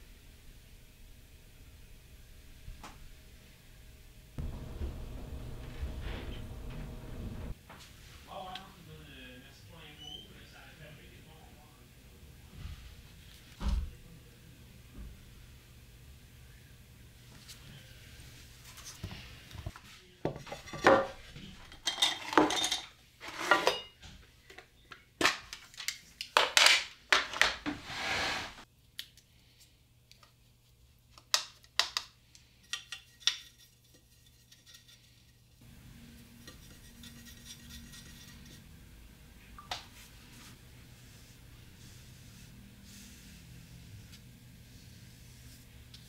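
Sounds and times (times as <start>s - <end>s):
brush working in paint pans: 36.2s - 38.7s, 39.9s - 46.0s.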